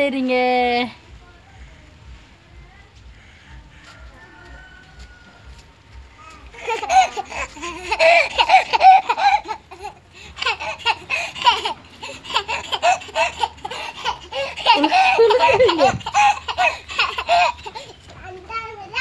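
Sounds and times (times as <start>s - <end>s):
young child laughing: 6.2s - 18.0s.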